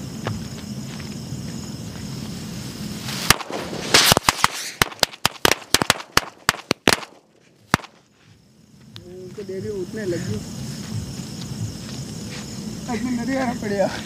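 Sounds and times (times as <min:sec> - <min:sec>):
firecrackers cracking: 0:02.2 - 0:08.0.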